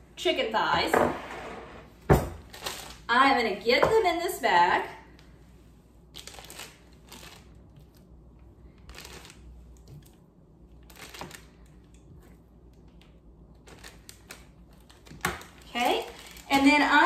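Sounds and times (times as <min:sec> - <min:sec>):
plastic bag crinkling: 0:02.4 - 0:03.1, 0:06.1 - 0:08.1, 0:08.7 - 0:10.0, 0:10.8 - 0:11.8, 0:13.6 - 0:17.0.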